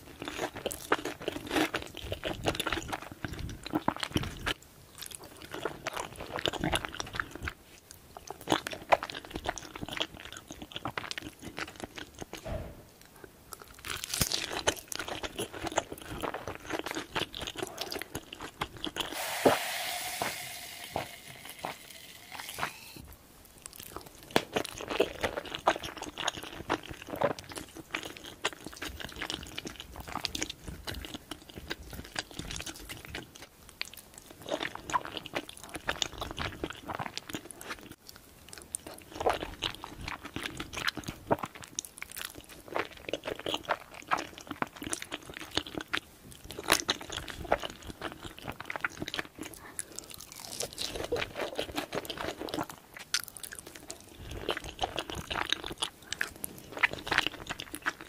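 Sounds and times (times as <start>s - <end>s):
close chewing mouth sounds: 0.0s - 19.2s, 23.6s - 58.0s.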